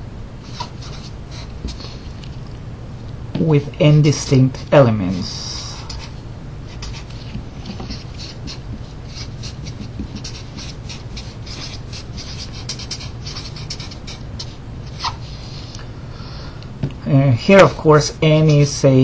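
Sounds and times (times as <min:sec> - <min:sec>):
steady low hum: 0:00.0 - 0:19.0
marker pen squeaking on paper: 0:00.4 - 0:02.1, 0:05.5 - 0:15.7.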